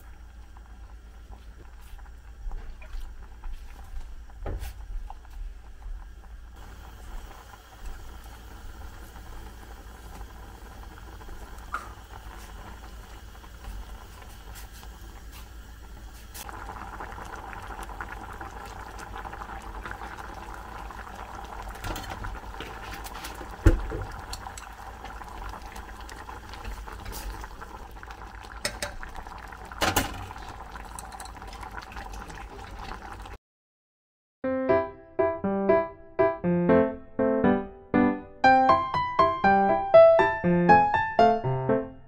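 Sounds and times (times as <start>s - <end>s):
soup bubbling in a pot: 0.0s - 33.4s.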